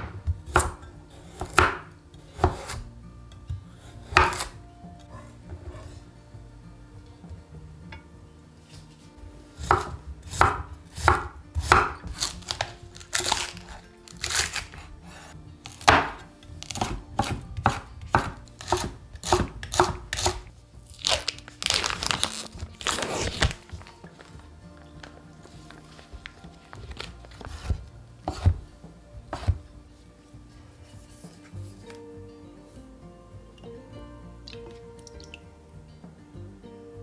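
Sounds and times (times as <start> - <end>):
knife chopping on wooden board: 0.0 - 2.8, 3.5 - 4.6, 9.6 - 14.9, 15.7 - 20.4, 27.4 - 28.7, 29.3 - 29.6
plastic film rustling: 12.1 - 14.8, 20.9 - 27.8.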